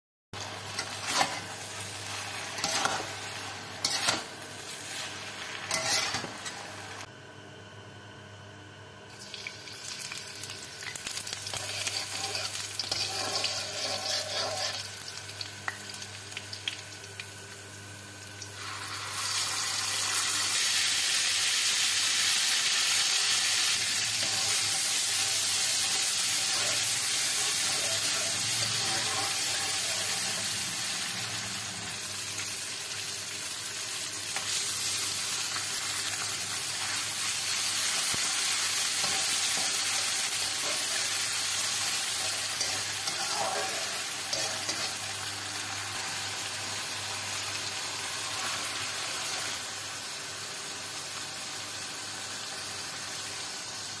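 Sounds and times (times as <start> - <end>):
loud steady sizzle: 0.3 - 7.1, 9.1 - 54.0
garlic frying in oil: 0.4 - 7.1, 9.1 - 54.0
spatula scraping wok: 0.4 - 7.1, 11.5 - 15.0, 23.4 - 32.0, 36.8 - 45.3.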